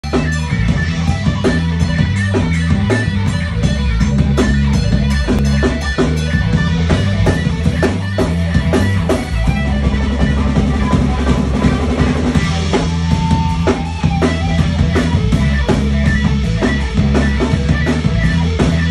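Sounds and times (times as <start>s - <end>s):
rock band playing: 0.0s - 18.9s.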